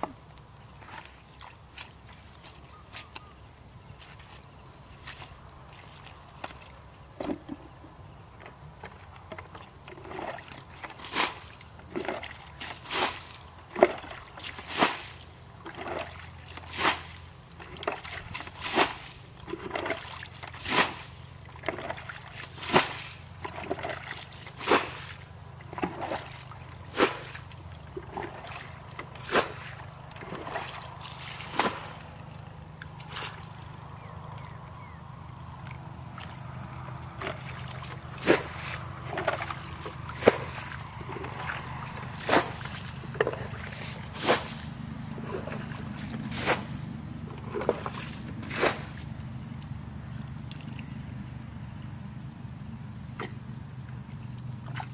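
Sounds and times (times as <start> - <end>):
water splashing from bailing: 9.4 - 34.6, 35.3 - 49.5, 54.0 - 54.9.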